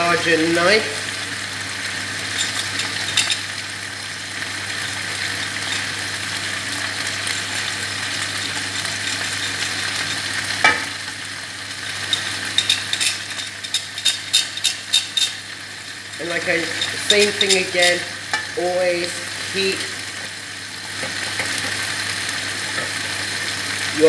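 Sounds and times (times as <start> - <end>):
cabbage sizzling in a pan: 0.0 - 24.0
knife scraping ceramic plate: 12.1 - 15.4.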